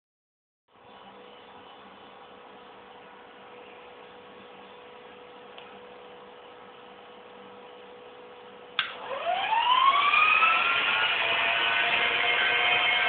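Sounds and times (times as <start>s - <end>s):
click: 5.5s - 5.7s
electric motor whine rising: 8.9s - 13.0s.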